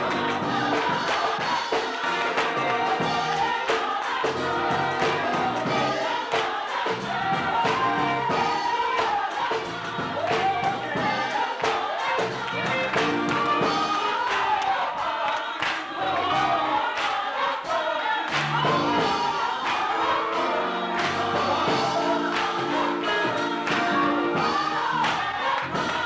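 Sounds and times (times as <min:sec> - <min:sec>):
gospel choir singing: 0:00.0 - 0:26.0
hand claps: 0:14.3 - 0:16.0, 0:18.3 - 0:18.6, 0:22.3 - 0:22.6, 0:23.7 - 0:24.0.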